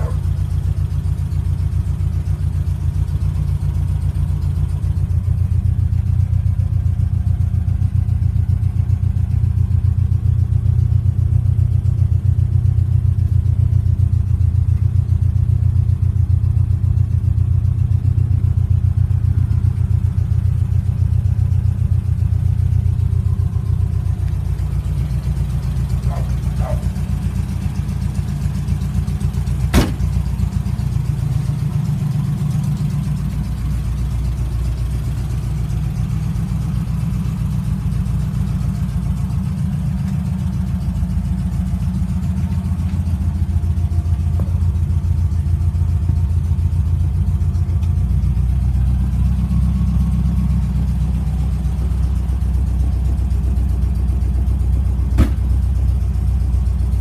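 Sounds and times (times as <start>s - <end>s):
car engine idling: 0.0s - 57.0s
sharp click or knock: 55.2s - 55.4s.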